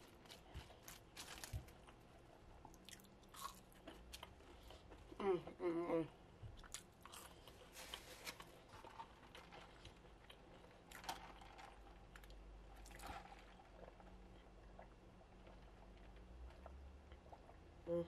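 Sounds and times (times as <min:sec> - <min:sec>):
person chewing: 0:02.6 - 0:05.2, 0:06.6 - 0:11.4.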